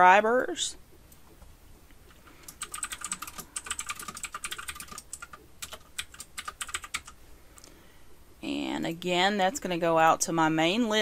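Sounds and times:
keyboard typing: 2.1 - 7.2.

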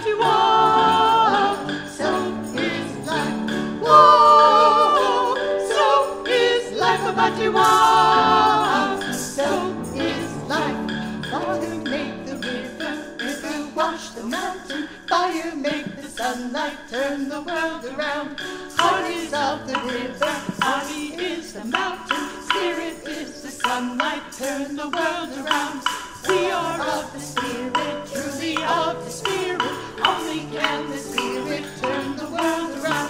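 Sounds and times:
piano: 0.0 - 33.0
rhythm sticks clicking: 0.0 - 33.0
women singing together: 0.0 - 33.0.

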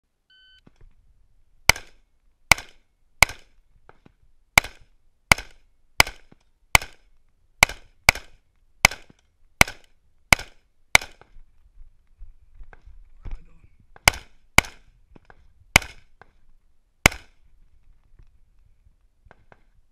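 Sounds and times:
shot timer beep: 0.3 - 0.6
rifle shots: 1.7 - 3.5, 4.6 - 7.0, 7.6 - 11.2, 14.0 - 14.9, 15.7 - 16.1, 17.0 - 17.4.

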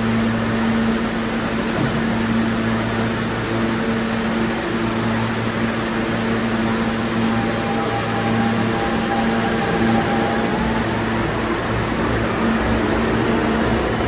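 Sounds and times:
low mechanical hum: 0.0 - 14.0
faint high whine: 5.1 - 13.6.

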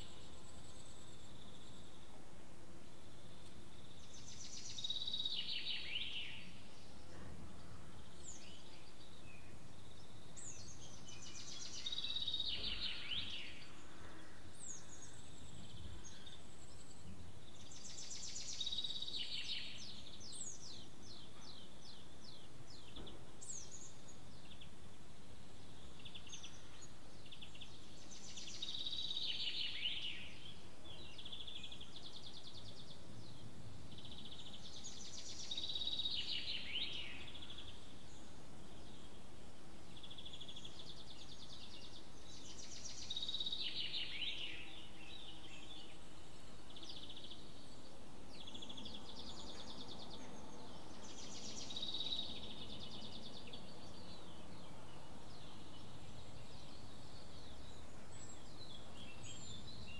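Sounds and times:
faint background noise: 0.0 - 59.9
birds chirping: 2.8 - 59.9.

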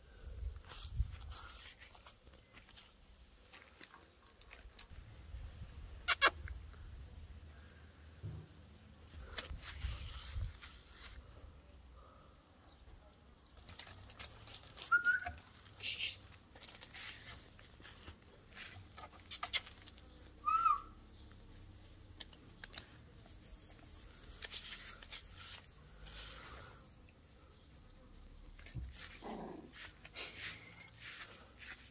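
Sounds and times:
puppy squeaks: 6.1 - 6.4, 20.4 - 20.9.

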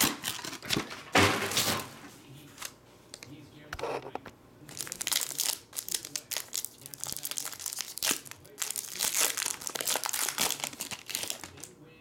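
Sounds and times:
foil wrapper tearing and crinkling: 0.0 - 0.8, 4.7 - 11.7.

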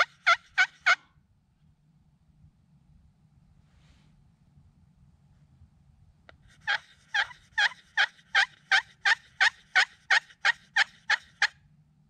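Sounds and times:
turkey pot call yelps: 0.0 - 1.0, 6.5 - 11.6.

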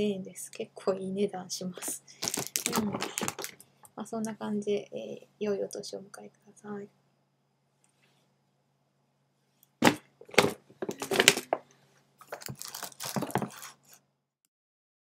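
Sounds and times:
tote bag rustling and crinkling: 1.8 - 3.6, 12.2 - 14.0.

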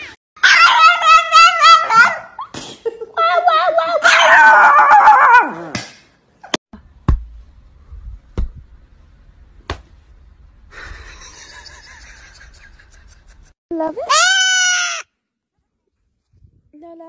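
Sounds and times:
dog howling: 0.4 - 2.4.

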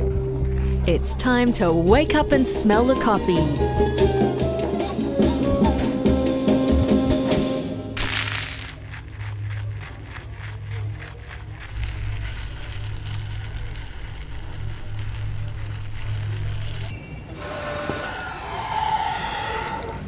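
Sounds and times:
coffee beans rattling in roaster: 8.0 - 16.9.

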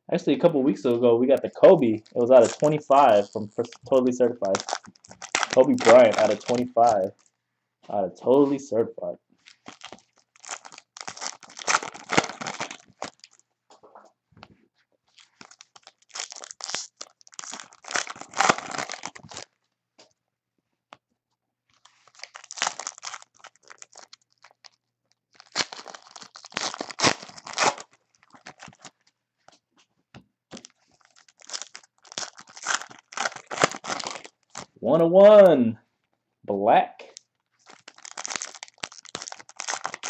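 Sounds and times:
card packs tearing and crinkling: 1.4 - 7.3, 9.4 - 13.4, 15.2 - 19.5, 21.8 - 28.9, 30.5 - 34.8, 37.6 - 40.0.

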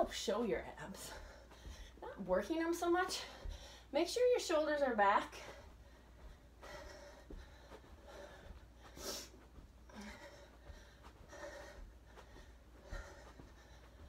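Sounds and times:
woman breathing hard: 1.0 - 2.1, 3.1 - 3.9, 5.4 - 14.0.

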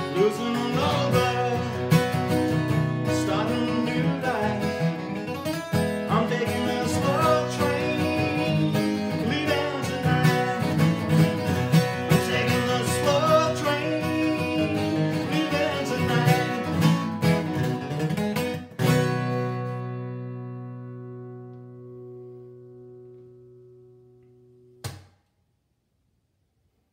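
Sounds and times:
man singing: 0.0 - 17.3
acoustic guitar strumming: 0.0 - 25.1.

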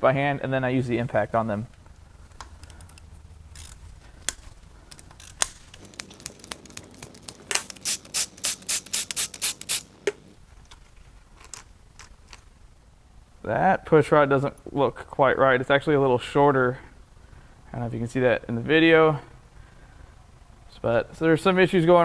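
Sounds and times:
hand ratchet clicking: 2.4 - 9.9.

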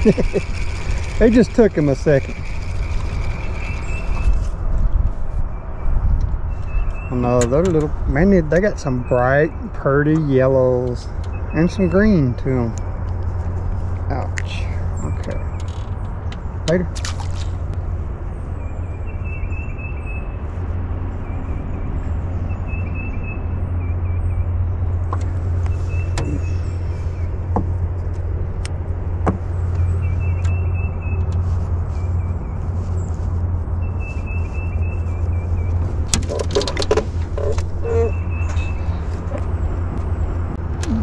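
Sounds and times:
bird chirping song: 0.0 - 27.8, 29.3 - 41.0.

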